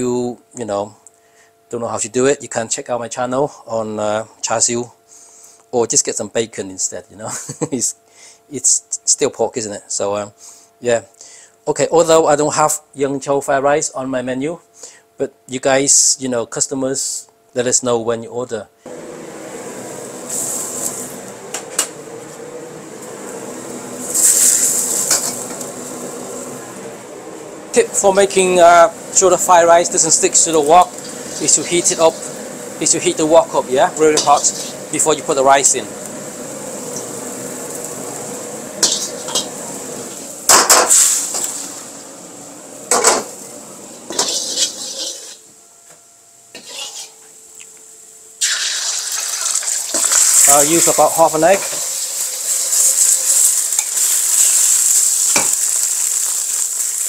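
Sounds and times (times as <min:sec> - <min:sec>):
wok range hum: 0:18.7 - 0:57.0
food sizzling in hot oil: 0:18.9 - 0:21.9, 0:22.8 - 0:45.5, 0:46.6 - 0:47.3, 0:48.4 - 0:57.0.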